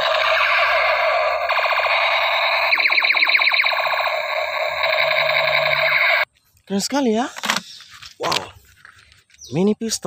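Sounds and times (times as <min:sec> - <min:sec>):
quick rising electronic chirps: 0:00.0 - 0:06.3
toy gun buzzing siren tone: 0:00.0 - 0:06.3.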